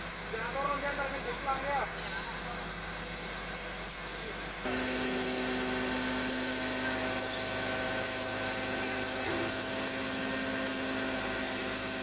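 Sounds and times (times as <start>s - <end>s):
diesel engine humming: 2.3s - 12.0s.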